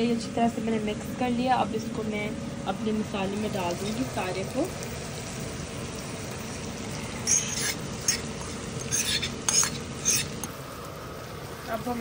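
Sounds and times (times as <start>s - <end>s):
frying sizzle: 0.0s - 12.0s
spatula scraping pan: 7.2s - 10.5s.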